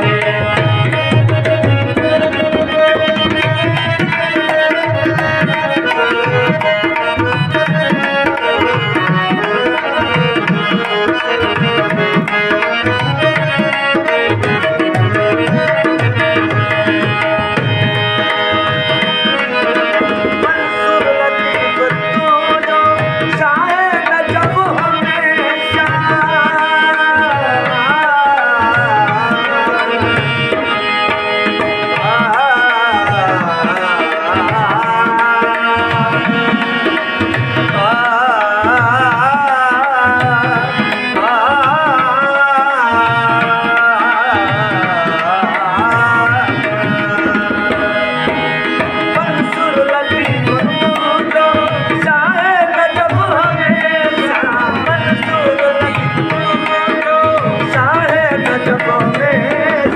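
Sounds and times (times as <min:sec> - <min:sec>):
harmonium droning melody: 0:00.0 - 0:59.9
man singing ornamented lines: 0:31.8 - 0:48.4, 0:49.1 - 0:59.9.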